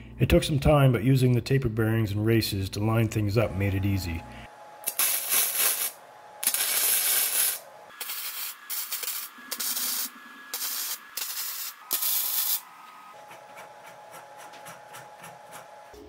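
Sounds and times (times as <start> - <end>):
welder hissing bursts: 4.8 - 12.6.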